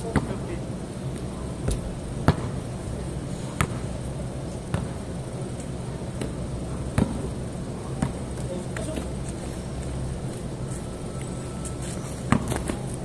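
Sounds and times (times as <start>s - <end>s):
basketball bouncing on concrete: 0.0s - 0.4s, 1.6s - 2.6s, 3.6s - 3.9s, 4.7s - 5.0s, 6.2s - 7.3s, 8.0s - 8.4s, 12.3s - 12.8s
low background hum: 0.0s - 13.0s.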